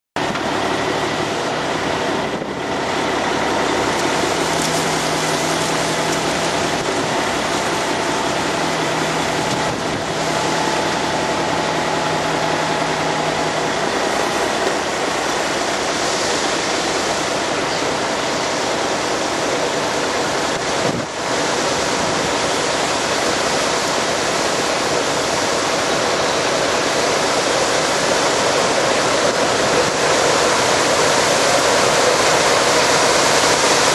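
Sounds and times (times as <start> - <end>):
forage harvester chopping corn: 3.0 - 13.6, 20.2 - 33.9.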